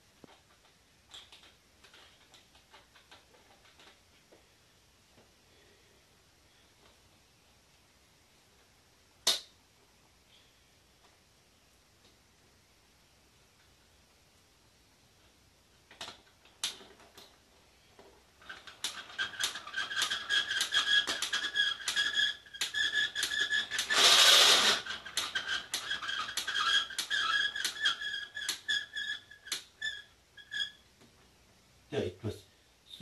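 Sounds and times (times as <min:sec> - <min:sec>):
toy winder squeaky clicking: 0:18.5 - 0:30.8.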